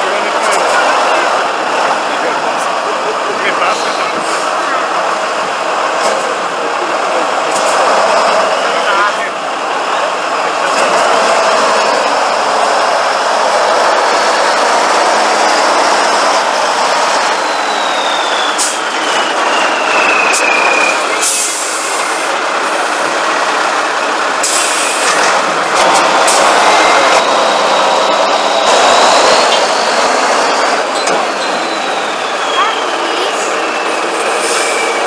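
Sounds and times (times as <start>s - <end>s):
diesel truck engine under load: 0.0s - 35.0s.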